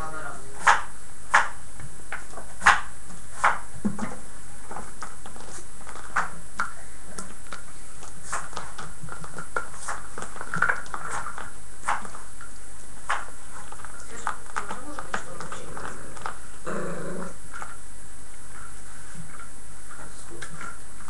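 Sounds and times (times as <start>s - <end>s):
scratchy crinkles: 4.6s - 6.3s, 7.1s - 16.6s.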